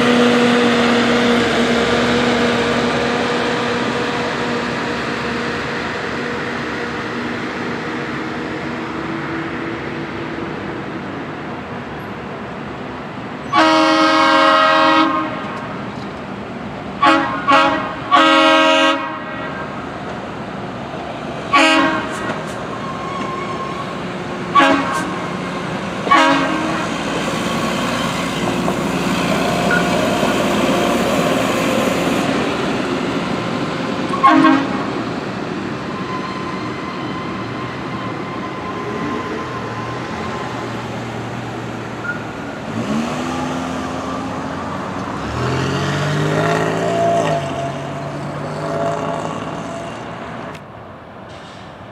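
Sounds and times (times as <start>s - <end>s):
rail equipment rumbling over crossing: 0.0s - 51.9s
engine revving up: 42.7s - 47.4s.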